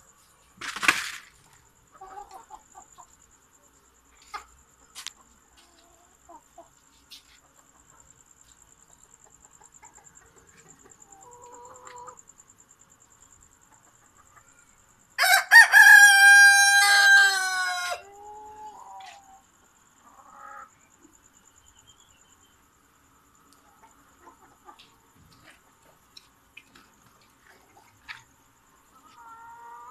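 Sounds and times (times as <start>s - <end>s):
chickens clucking softly: 1.9s - 12.4s, 13.2s - 14.8s, 18.0s - 21.2s, 23.2s - 29.9s
rooster crowing: 15.2s - 18.2s.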